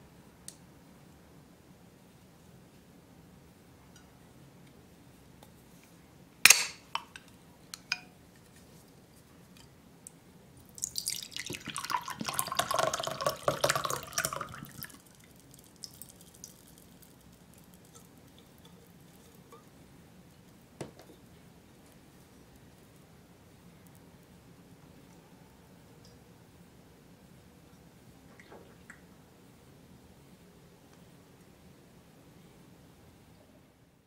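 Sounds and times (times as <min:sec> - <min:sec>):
drink can pop opening: 0:06.5 - 0:07.1
drink pouring into a glass: 0:10.7 - 0:19.0.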